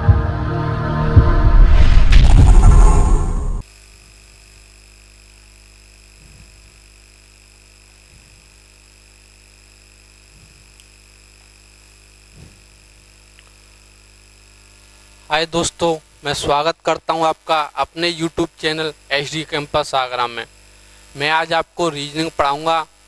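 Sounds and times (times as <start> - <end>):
low electrical hum: 2.2 - 23.0.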